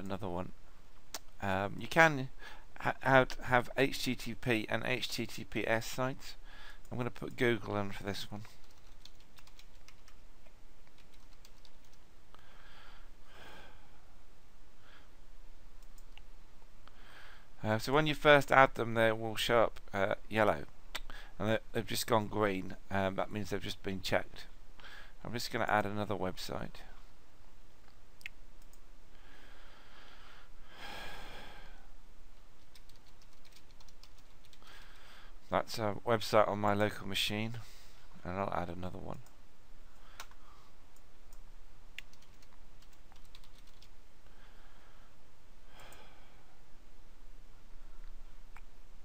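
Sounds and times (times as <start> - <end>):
microphone hiss: 0.0 - 49.0
breaths close to microphone: 2.4 - 2.8, 6.4 - 6.9, 12.3 - 14.2, 16.8 - 17.6, 21.1 - 21.4, 24.8 - 25.2, 29.1 - 32.0, 34.6 - 35.5, 39.8 - 40.9, 44.2 - 46.7.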